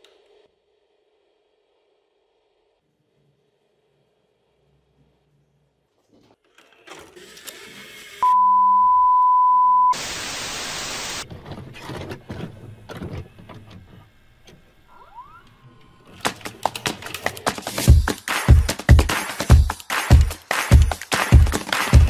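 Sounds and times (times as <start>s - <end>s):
steady beep: 8.2s - 10.0s
static hiss burst: 9.8s - 11.2s.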